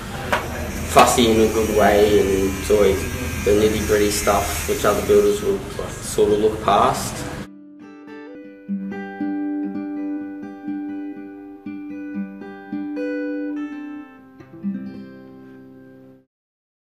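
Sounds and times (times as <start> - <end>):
plucked guitar melody: 7.2 - 16.2.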